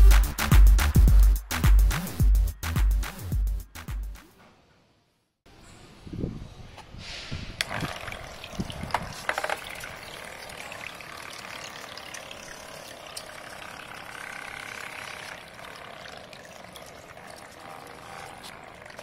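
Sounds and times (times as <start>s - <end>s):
propeller churning water: 7.6s - 19.0s.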